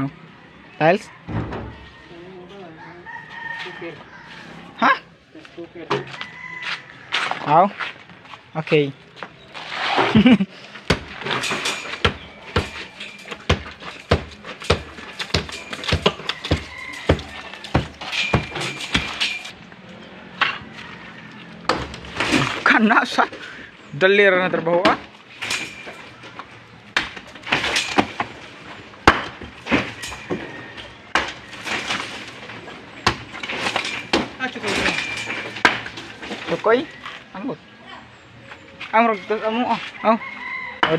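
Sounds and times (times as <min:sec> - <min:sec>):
hammer striking wall: 0:10.9 - 0:19.3, 0:35.3 - 0:35.9.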